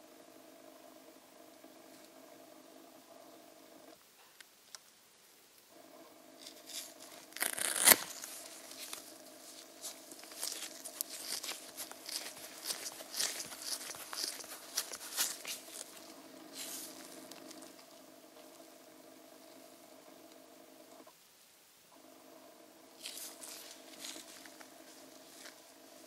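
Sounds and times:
faint steady hum: 0.0 - 26.0
crinkling rustling handling noises: 6.4 - 18.5, 23.0 - 26.0.

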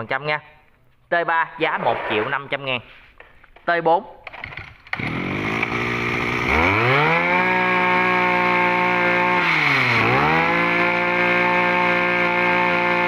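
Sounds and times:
two-stroke brush-cutter engine revving: 4.3 - 13.0.

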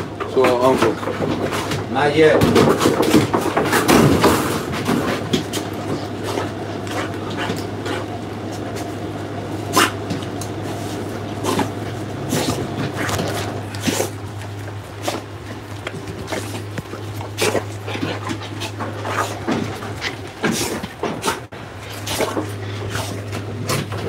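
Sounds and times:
steady low hum: 0.0 - 24.0
dog vocalizing: 5.0 - 24.0.

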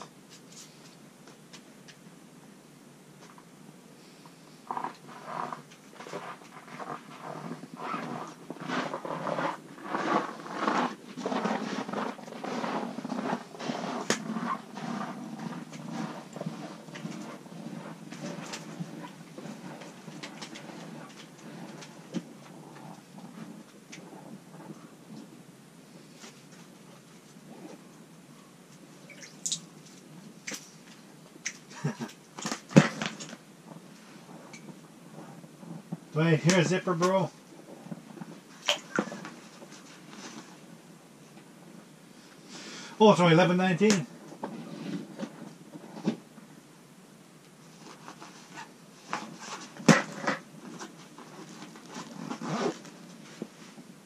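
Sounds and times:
rustling: 4.0 - 46.4, 47.5 - 54.0
zipper: 4.7 - 24.8, 47.8 - 53.5.

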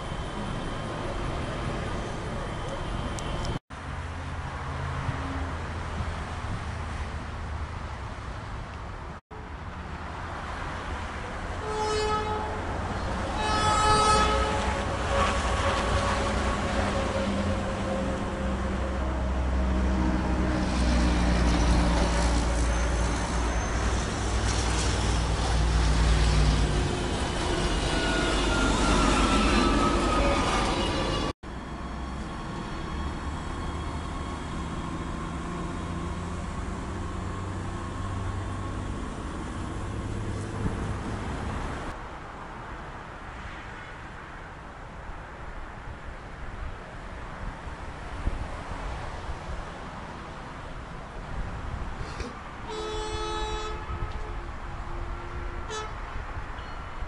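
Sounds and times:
train horn blasts: 11.6 - 20.7, 52.6 - 56.8.

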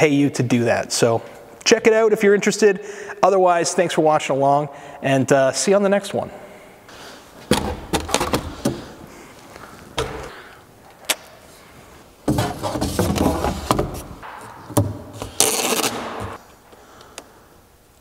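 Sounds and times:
cardboard rustling: 12.3 - 14.2
packing tape ripping: 15.3 - 16.4.

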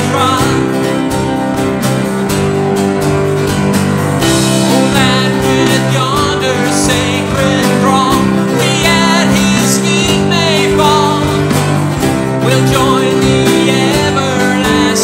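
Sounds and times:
man singing a hymn: 0.0 - 0.9, 4.6 - 11.7, 12.3 - 15.0
strummed acoustic guitar: 0.0 - 15.0
sustained keyboard chords: 0.0 - 15.0.

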